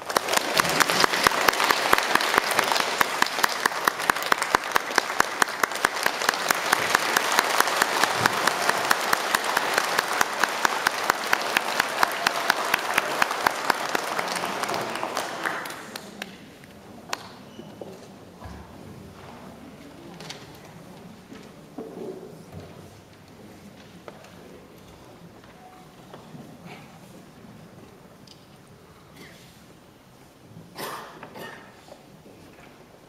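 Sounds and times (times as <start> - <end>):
nearby hands clapping sharply: 0.0 - 16.4
audience applauding: 0.0 - 16.5.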